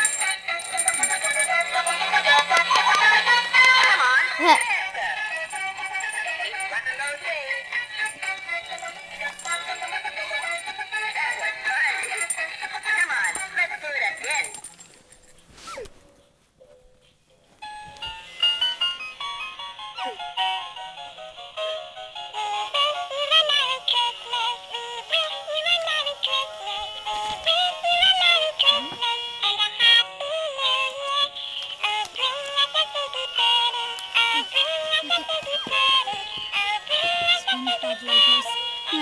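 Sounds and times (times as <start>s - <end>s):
toy singing through tinny speaker: 27.4s - 39.0s.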